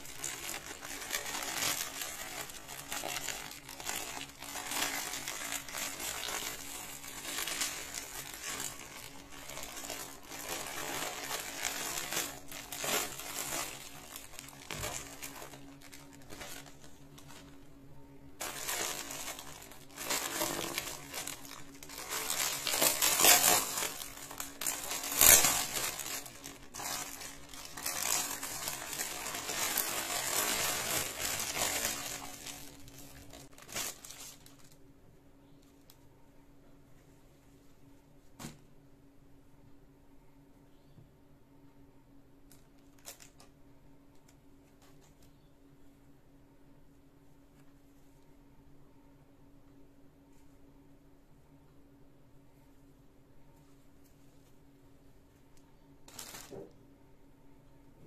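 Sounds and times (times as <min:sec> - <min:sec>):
plastic mailer tearing and crinkling: 0:00.0 - 0:17.6, 0:18.4 - 0:34.8, 0:42.8 - 0:43.5, 0:56.0 - 0:56.8
plastic bag rustling and crackling: 0:00.0 - 0:17.7, 0:18.4 - 0:34.8, 0:56.0 - 0:56.8.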